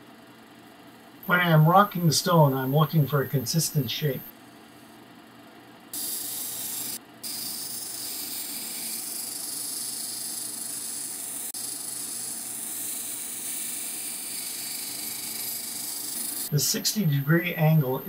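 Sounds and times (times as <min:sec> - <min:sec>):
stone grinding machine hissing: 0:06.0 - 0:16.6.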